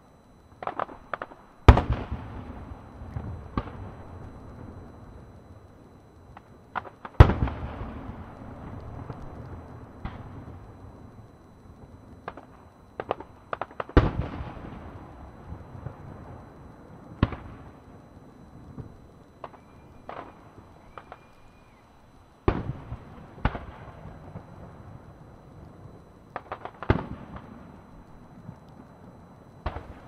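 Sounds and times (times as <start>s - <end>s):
fireworks bursting: 0.6s - 30.0s
faint high whistles: 19.3s - 22.2s.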